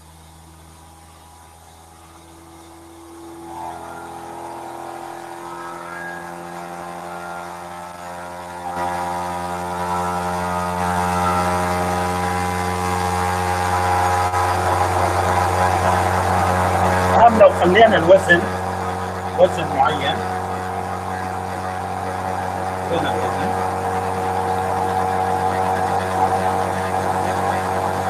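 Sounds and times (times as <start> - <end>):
electric motor humming: 0.0 - 28.0.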